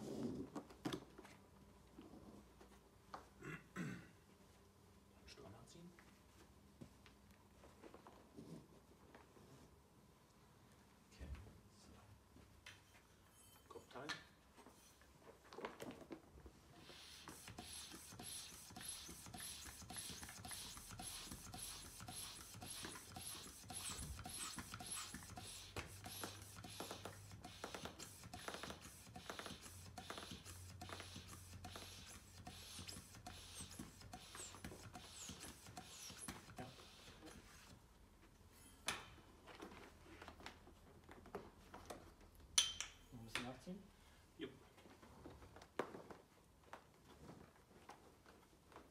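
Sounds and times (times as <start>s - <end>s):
hand vacuum pump strokes: 16.8s - 37.8s.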